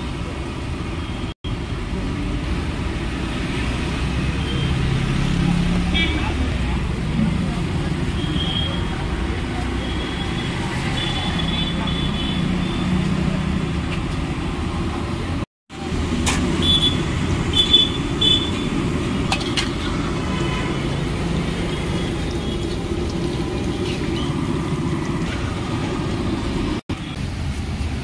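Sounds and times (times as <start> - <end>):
low street traffic rumble: 0.0 - 28.0
food sizzling in hot oil: 15.9 - 27.1.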